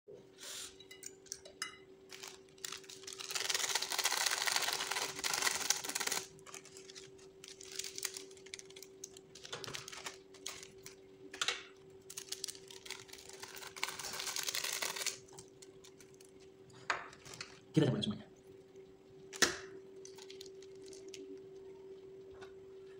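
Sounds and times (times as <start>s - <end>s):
faint steady hum: 0.1s - 22.9s
plastic sachets crinkling and tearing: 2.1s - 11.1s, 12.0s - 16.5s, 17.2s - 17.6s, 20.0s - 21.5s.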